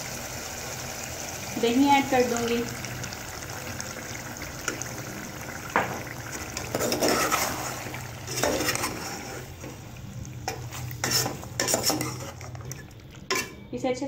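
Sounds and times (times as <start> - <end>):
metal spoon scraping pot: 6.6 - 9.6, 10.5 - 13.7.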